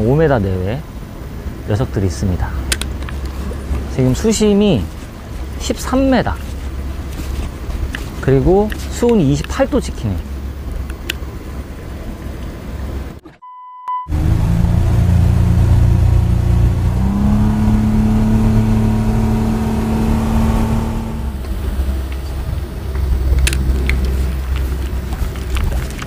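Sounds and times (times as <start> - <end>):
short steady beep: 13.4 - 14.1
outboard motor running: 14.1 - 26.0.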